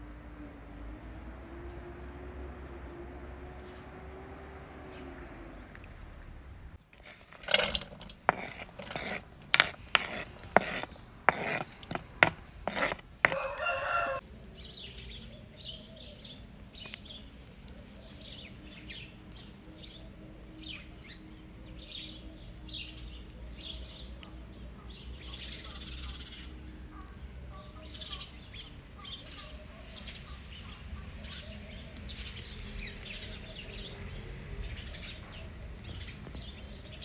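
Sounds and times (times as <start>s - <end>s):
sharp taps and knocks: 7.0s - 13.8s
small birds chirping: 8.4s - 37.0s
rooster crowing: 13.3s - 14.2s.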